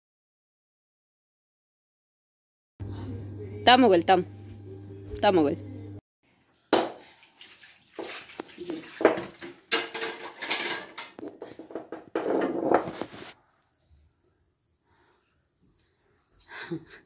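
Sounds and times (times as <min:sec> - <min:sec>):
metal pots clinking and scraping: 0:07.9 - 0:13.4.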